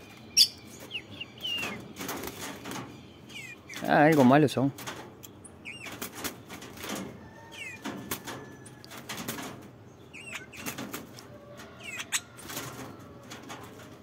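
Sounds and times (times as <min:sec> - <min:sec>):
high bird chirps: 0:00.0 - 0:03.9, 0:05.3 - 0:06.0, 0:07.4 - 0:07.8, 0:10.0 - 0:10.8
bird wings fluttering: 0:01.6 - 0:02.9, 0:10.6 - 0:11.3, 0:12.4 - 0:14.0.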